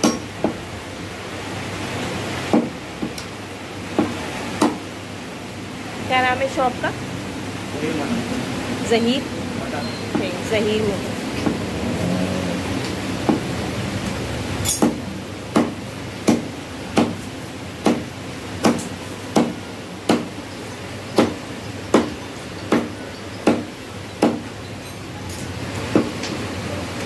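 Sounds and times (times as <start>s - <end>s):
cleaver chopping on wooden block: 0.0s - 0.6s, 2.5s - 3.3s, 4.0s - 4.8s, 14.7s - 17.2s, 17.8s - 20.3s, 21.1s - 24.5s.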